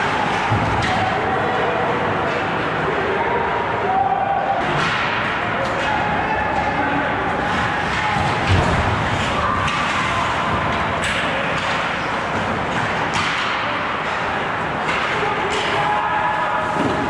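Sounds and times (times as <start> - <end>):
hockey sticks and puck clacking: 0.0 - 17.0.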